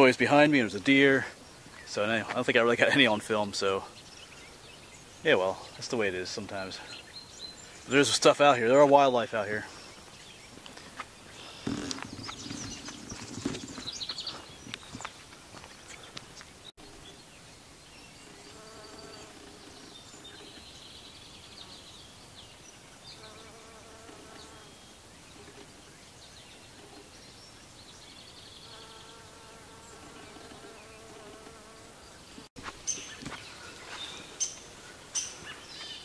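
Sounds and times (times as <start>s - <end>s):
footfalls on trail: 10.0s - 16.5s, 32.6s - 34.3s
insect buzzing: 11.4s - 14.0s, 18.2s - 20.0s, 23.1s - 24.9s, 28.6s - 32.4s.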